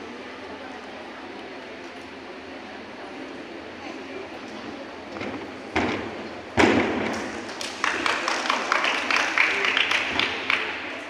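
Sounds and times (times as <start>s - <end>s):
spectators clapping: 7.1s - 11.0s.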